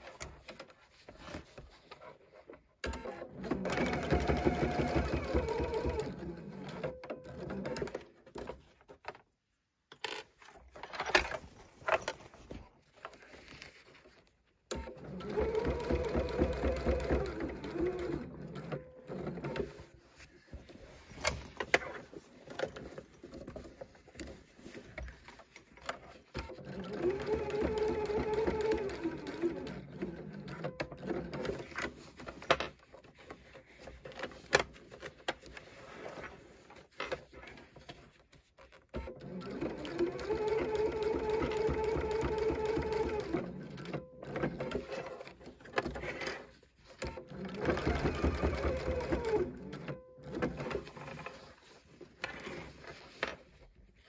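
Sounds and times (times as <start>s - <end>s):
sewing machine stitching: 2.8s - 8.5s, 14.7s - 20.0s, 26.1s - 32.0s, 38.9s - 51.6s
fabric rustling: 10.4s - 14.6s, 19.6s - 26.3s.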